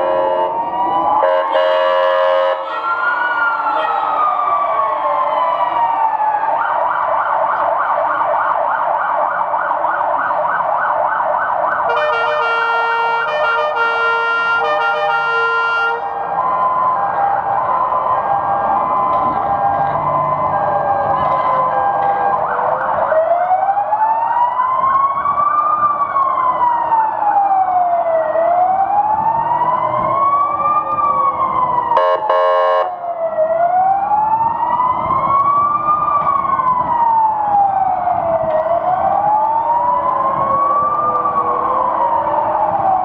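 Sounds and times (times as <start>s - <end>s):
blaring horn blast: 0.0s - 3.0s, 11.9s - 16.1s, 32.0s - 33.0s
ambulance siren wailing: 0.0s - 43.0s.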